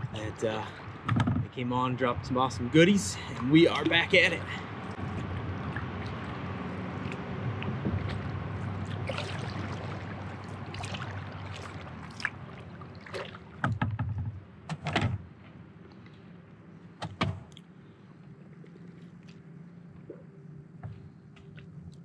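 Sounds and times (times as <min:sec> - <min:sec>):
water washing: 0:03.0 - 0:13.8
paddle strokes: 0:04.8 - 0:14.4.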